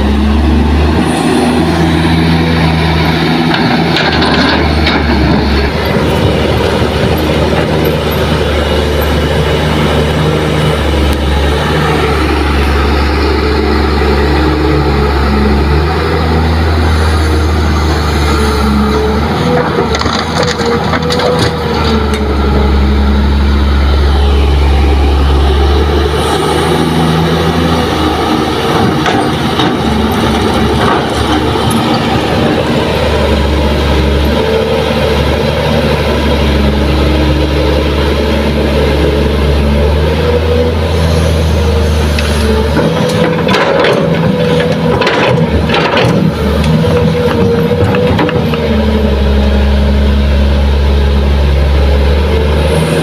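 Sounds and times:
diesel engine running: 0:00.0 - 0:53.0
soil and rocks clattering into truck: 0:03.5 - 0:05.4, 0:19.6 - 0:22.2, 0:42.8 - 0:46.3.

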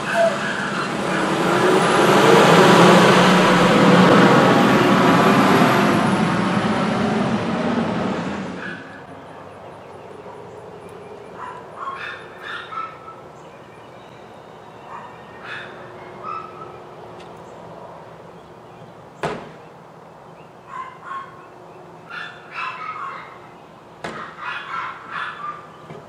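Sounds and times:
dog barking: 0:11.4 - 0:13.3, 0:14.9 - 0:16.8, 0:20.7 - 0:21.4, 0:22.1 - 0:23.4, 0:24.1 - 0:25.7
sharp knock: 0:19.2 - 0:19.6.

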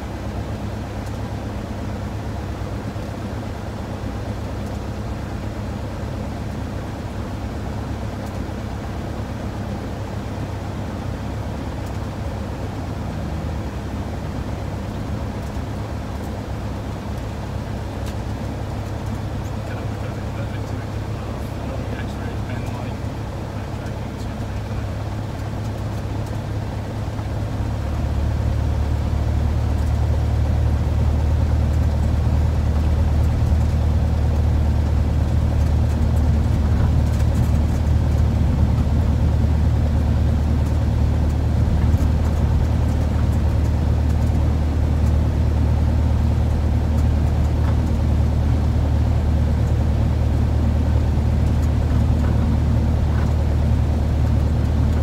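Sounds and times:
light aircraft engine drone: 0:00.0 - 0:55.0.

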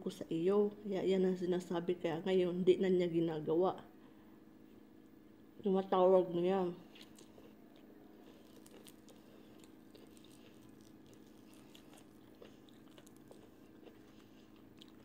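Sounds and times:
steady low hum: 0:00.0 - 0:15.0
chewing fried chicken: 0:06.8 - 0:15.0.

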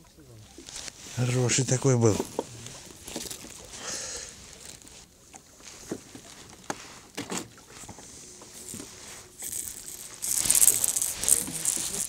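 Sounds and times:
loud rustling hiss: 0:08.5 - 0:12.0.

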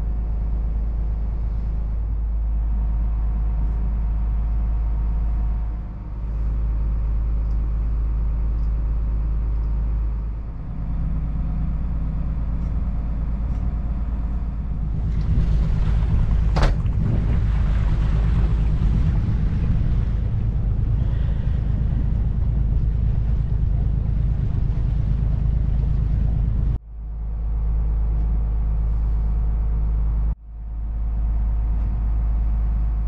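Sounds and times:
diesel engine drone: 0:00.0 - 0:33.0
wind buffeting microphone: 0:11.7 - 0:26.8.

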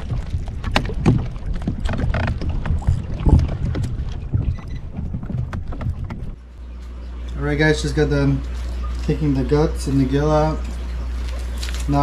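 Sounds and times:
wind on microphone: 0:00.0 - 0:06.5
water sloshing against hull: 0:00.0 - 0:07.3
steady low hum: 0:00.0 - 0:12.0
knocks and clicks: 0:00.6 - 0:06.4.

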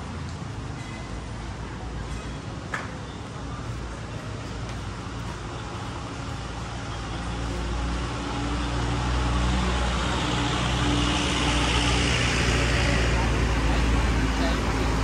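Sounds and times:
road noise hum: 0:00.0 - 0:15.0
vehicle engine approaching: 0:05.8 - 0:15.0.

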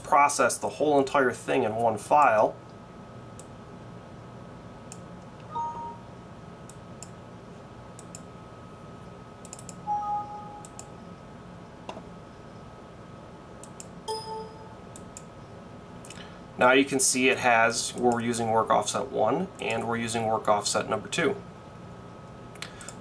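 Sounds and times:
computer mouse clicks: 0:04.9 - 0:05.1, 0:08.0 - 0:08.3, 0:09.4 - 0:09.8, 0:10.6 - 0:10.9, 0:13.6 - 0:13.9, 0:14.9 - 0:15.3
two-note computer alert chimes: 0:05.5 - 0:06.1, 0:09.9 - 0:10.8, 0:14.1 - 0:14.9
faint high whine: 0:09.5 - 0:12.8, 0:13.6 - 0:15.6
low hum: 0:13.7 - 0:16.4.

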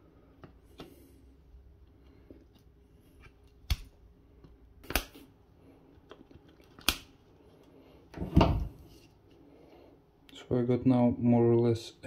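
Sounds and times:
plastic snaps: 0:04.8 - 0:05.2, 0:06.0 - 0:07.2.

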